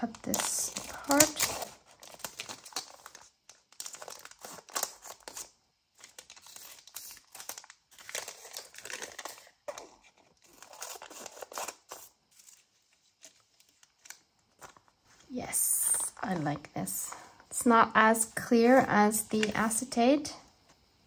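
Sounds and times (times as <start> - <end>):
scissors cutting plastic bag: 0.0 - 5.5
plastic film crinkling: 0.0 - 17.6.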